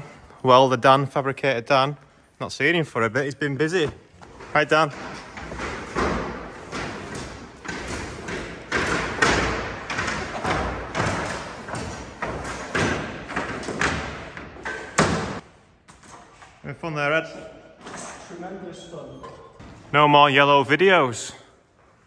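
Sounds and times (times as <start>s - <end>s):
heavy echoing thuds: 4.9s - 16.0s.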